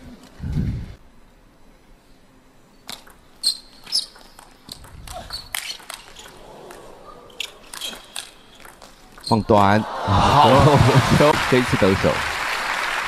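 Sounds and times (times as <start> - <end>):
shoes squeaking on floor: 2.8 - 6.4, 7.3 - 9.5
table tennis ball clicking: 2.9 - 3.2, 7.7 - 9.3.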